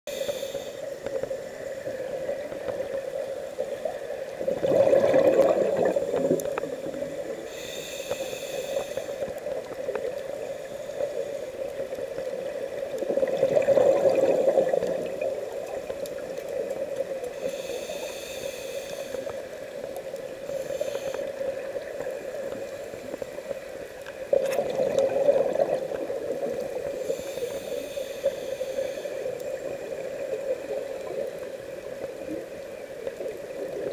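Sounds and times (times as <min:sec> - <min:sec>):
regulator inhalation hiss: 0:00.1 - 0:02.1, 0:05.9 - 0:12.1, 0:17.3 - 0:23.6, 0:26.7 - 0:30.1
bubbling underwater exhalations: 0:04.4 - 0:06.6, 0:13.1 - 0:15.3, 0:24.4 - 0:26.5.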